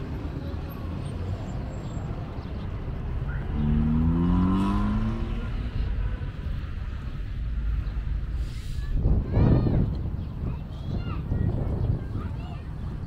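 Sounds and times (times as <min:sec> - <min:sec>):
low rumble of traffic: 0:00.0 - 0:13.0
wind: 0:00.0 - 0:13.0
vehicle engine driving past: 0:02.9 - 0:07.0.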